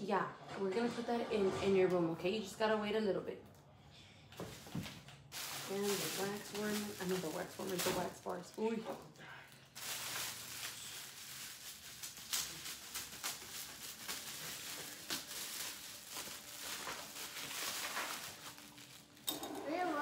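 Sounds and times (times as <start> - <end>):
crinkly paper rustling: 4.4 - 20.0.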